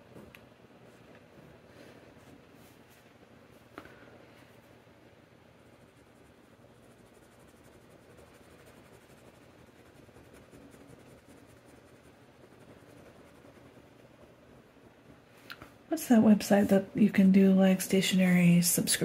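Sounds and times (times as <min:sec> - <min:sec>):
fountain pen scratching on paper: 0:05.6 - 0:14.3.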